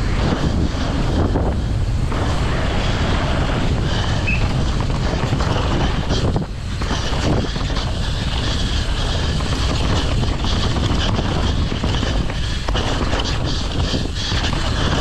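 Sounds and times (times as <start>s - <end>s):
low rumble: 0.0s - 15.0s
wind buffeting microphone: 0.0s - 15.0s.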